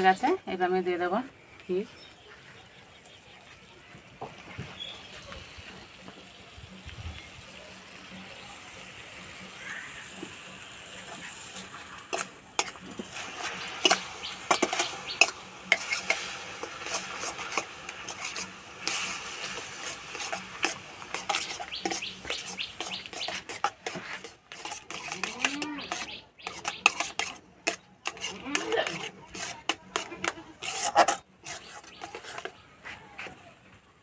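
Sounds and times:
ghee sizzling in syrup: 0.0s - 32.8s
metal spatula scraping pan: 11.0s - 32.6s.

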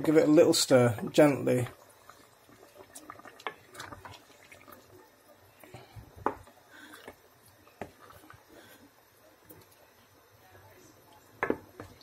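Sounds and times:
spoon stirring curry in pot: 1.0s - 9.9s, 11.2s - 12.0s.

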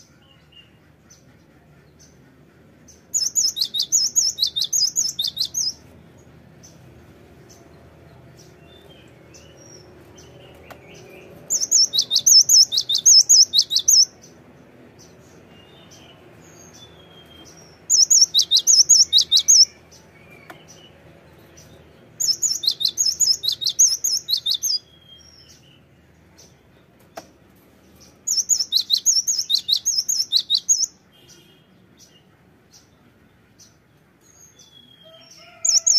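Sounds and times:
soft bird chirps: 3.1s - 5.8s, 7.4s - 14.2s, 15.3s - 27.3s, 27.9s - 33.8s.

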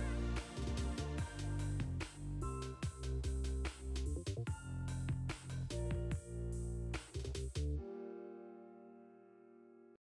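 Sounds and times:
instrumental music with bass and drums: 0.0s - 7.8s.

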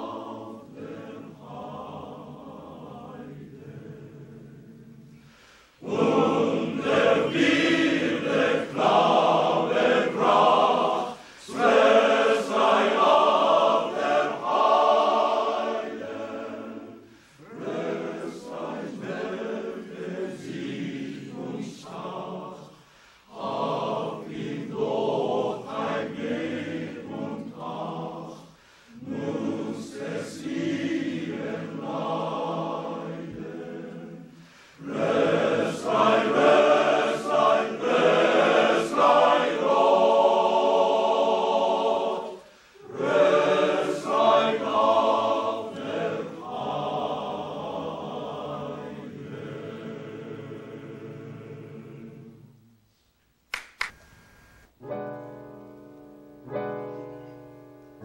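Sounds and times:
choir singing: 0.0s - 52.8s.

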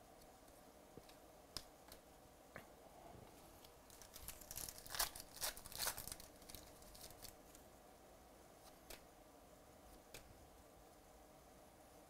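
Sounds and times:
wrapper tearing and crinkling: 3.9s - 7.4s.

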